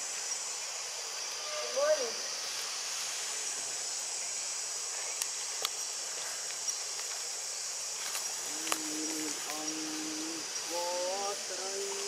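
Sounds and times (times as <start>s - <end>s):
insects droning: 0.0s - 12.0s.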